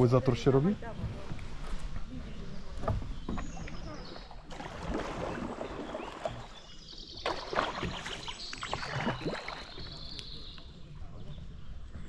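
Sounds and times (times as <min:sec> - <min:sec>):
paddle splashing in water: 0:02.7 - 0:10.4.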